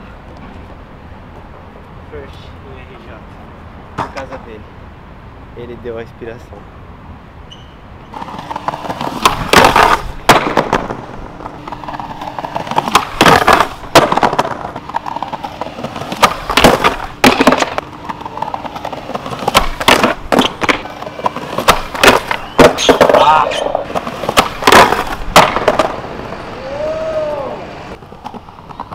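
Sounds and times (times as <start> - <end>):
skateboard clacking on ground: 8.1 - 26.6, 27.9 - 28.9
skateboard rolling on stone: 8.1 - 28.9.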